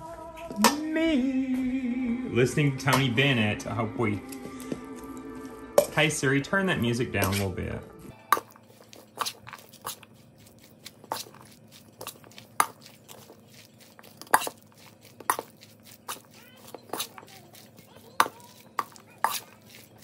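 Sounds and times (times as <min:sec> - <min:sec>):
spoon clinking and scraping bowl: 0:08.2 - 0:20.0.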